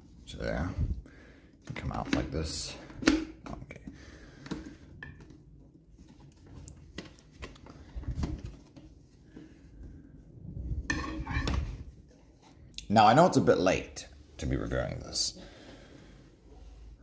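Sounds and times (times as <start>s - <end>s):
plastic bucket clicks and knocks: 1.7s - 3.6s.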